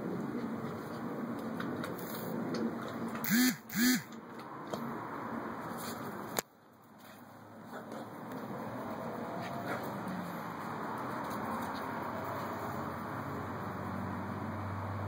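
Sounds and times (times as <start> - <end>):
quacking calls: 3.2 - 4.1.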